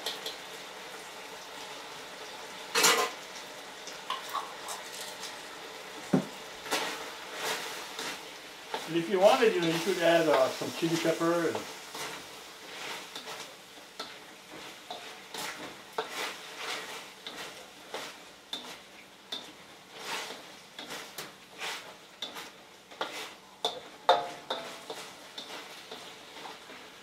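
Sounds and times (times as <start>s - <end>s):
food sizzling faintly: 0.0s - 27.0s
spatula scraping a wok: 6.6s - 27.0s.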